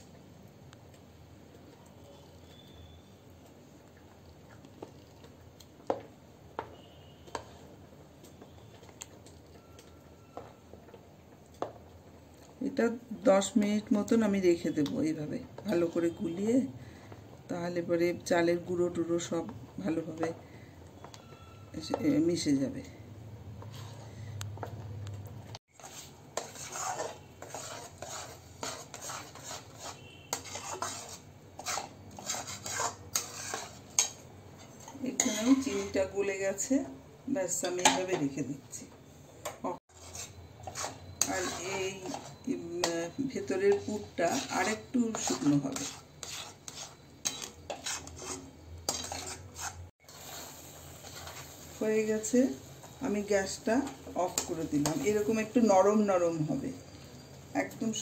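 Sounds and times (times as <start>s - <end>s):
spoon stirring batter in bowl: 1.6s - 12.6s, 23.6s - 36.7s, 39.4s - 51.5s, 53.5s - 55.6s
metal spatula scraping metal pan: 23.6s - 24.3s, 25.7s - 36.2s, 39.9s - 52.6s, 53.2s - 55.6s.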